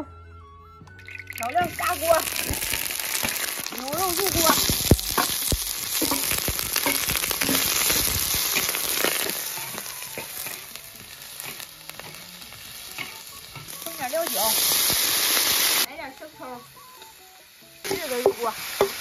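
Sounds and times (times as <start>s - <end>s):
beef sizzling in hot oil: 1.0s - 19.0s
metal spatula scraping a wok: 2.1s - 15.9s.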